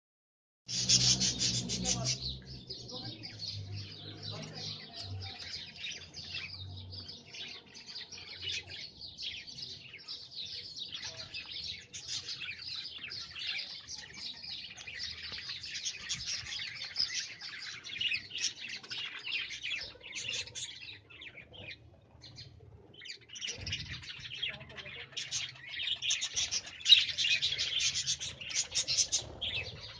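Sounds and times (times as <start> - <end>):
budgerigars chattering: 0.7 - 2.3.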